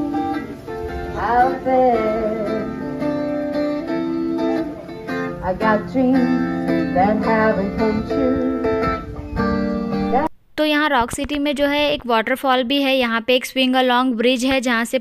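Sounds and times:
acoustic guitar strumming: 0.0 - 10.3
woman singing: 1.1 - 3.1, 5.3 - 9.0.

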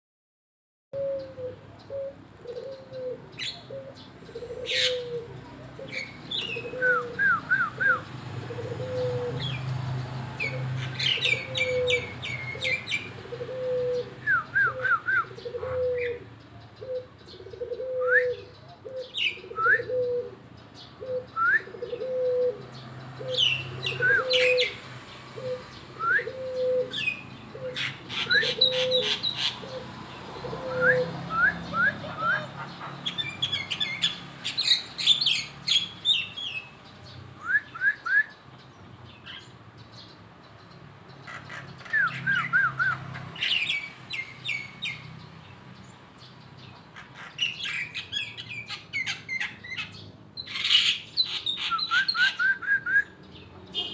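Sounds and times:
songbird chirping: 1.0 - 53.9.

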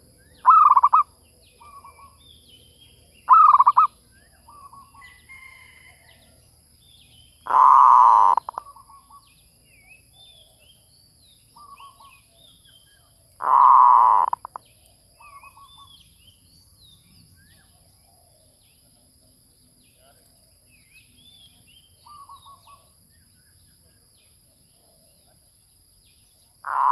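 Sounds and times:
dove trilled cooing: 0.0 - 2.2, 3.3 - 5.8, 7.5 - 9.3, 11.6 - 12.4, 13.4 - 14.6, 22.0 - 22.9, 26.6 - 26.9
small bird chirps: 0.1 - 26.9.

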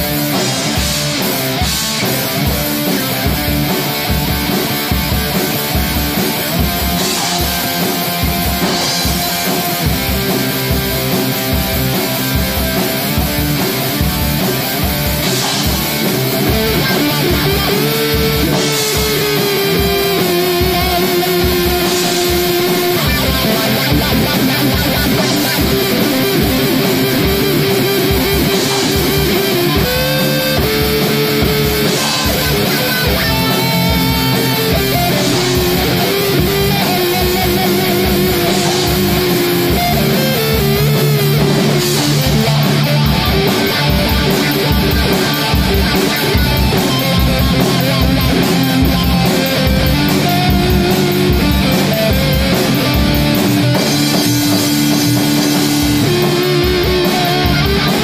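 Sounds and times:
electric guitar: 0.0 - 58.0.

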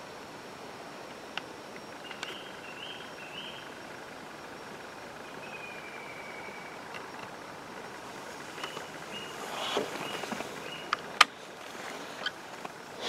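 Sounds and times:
steady hiss: 0.0 - 13.0
small birds chirping: 1.7 - 13.0.

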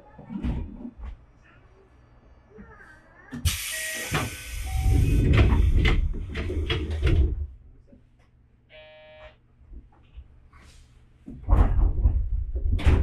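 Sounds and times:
air hissing from train doors: 3.4 - 6.0
electronic buzzer tone: 3.7 - 5.1, 8.7 - 9.4
doors sliding and thudding: 4.1 - 7.5.

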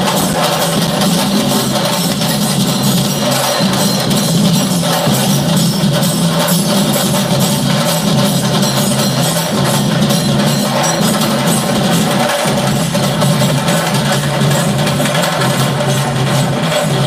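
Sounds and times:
music with fast busy percussion: 0.0 - 17.0.

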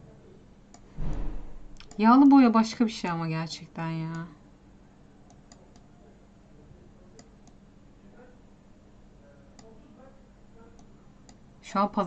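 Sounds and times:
low room hum: 0.0 - 12.0
computer mouse clicking: 1.8 - 2.0, 5.3 - 5.9, 7.2 - 7.6.

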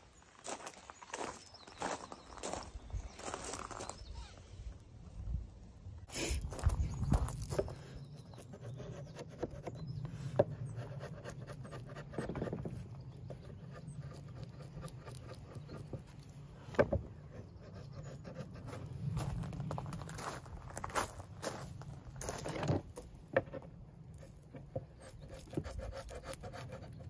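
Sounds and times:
chisel scraping wood: 7.6 - 19.0, 23.4 - 27.0.

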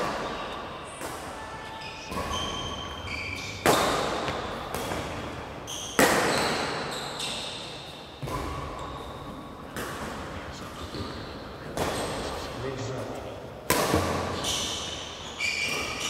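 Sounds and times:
shoes squeaking on court: 0.0 - 9.5, 10.8 - 12.5, 14.3 - 16.0
racket hitting shuttlecock: 2.1 - 8.8, 13.6 - 15.0.

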